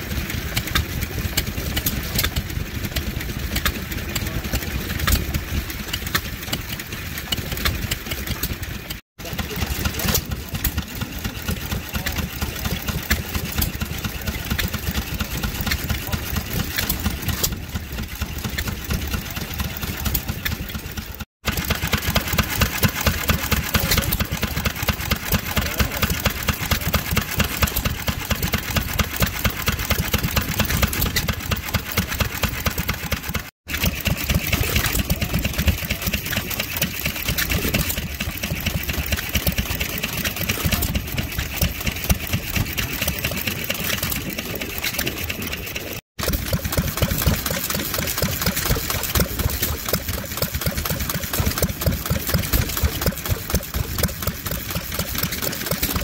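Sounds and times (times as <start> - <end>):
stationary engine running: 0.0 - 56.0.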